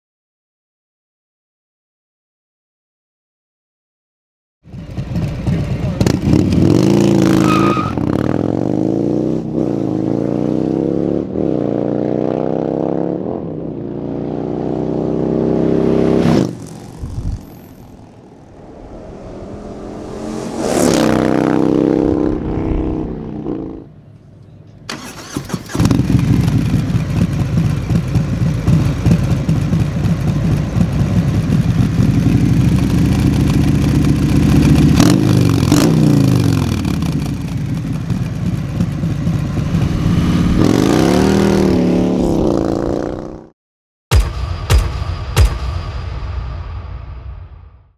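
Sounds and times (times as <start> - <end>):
motorcycle engine idling: 4.7 - 6.1, 26.0 - 34.8
motorcycle accelerating past: 4.7 - 23.9, 25.7 - 43.5
motorcycle throttle revving: 14.5 - 18.6.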